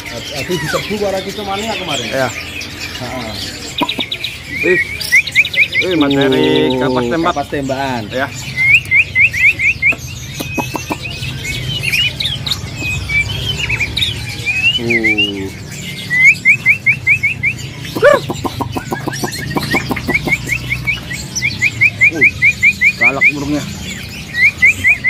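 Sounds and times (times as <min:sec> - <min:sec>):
bird singing whistled phrases: 0:03.8 - 0:07.3, 0:08.5 - 0:23.6, 0:24.2 - 0:25.0
lower bird call: 0:12.8 - 0:23.4.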